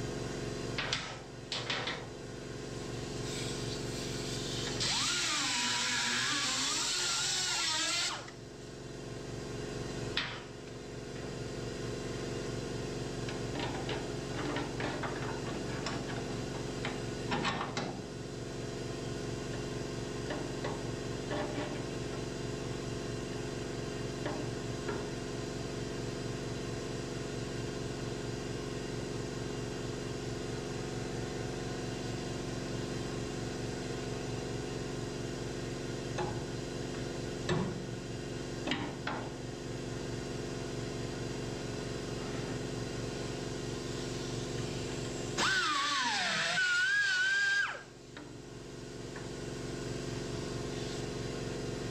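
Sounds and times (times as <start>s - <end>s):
motor humming: 3.2s - 8.4s, 44.0s - 47.9s.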